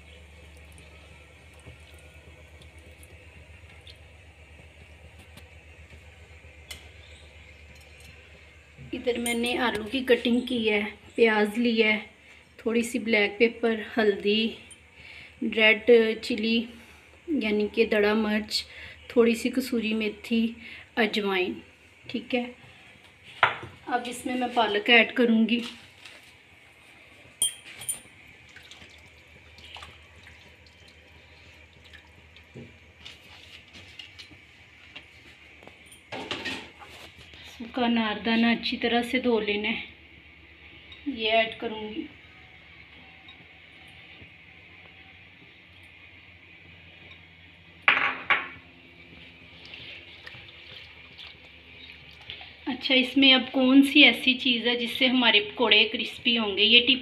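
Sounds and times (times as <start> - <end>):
light taps and wet rustles: 0.2 - 8.2, 25.5 - 38.4, 49.0 - 52.7.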